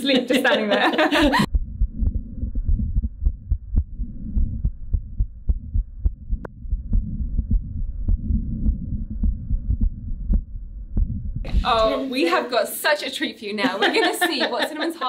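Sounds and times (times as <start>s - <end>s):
muffled heartbeat: 1.2s - 11.9s.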